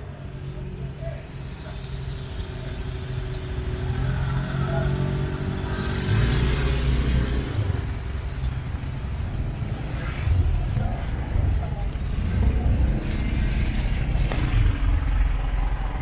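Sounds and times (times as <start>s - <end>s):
vehicle engines idling: 0.0s - 16.0s.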